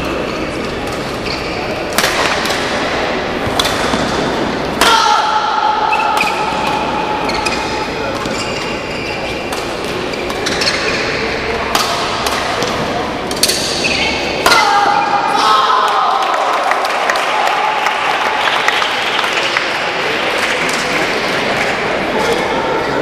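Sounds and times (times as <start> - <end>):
shoes squeaking on court: 0.5 - 1.8, 7.2 - 11.4
rackets striking shuttlecock: 0.6 - 5.0, 5.8 - 14.7.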